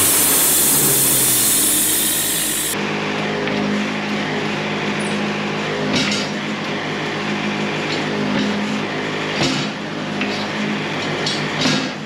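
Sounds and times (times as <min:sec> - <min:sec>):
sawmill running: 0:00.0 - 0:03.4.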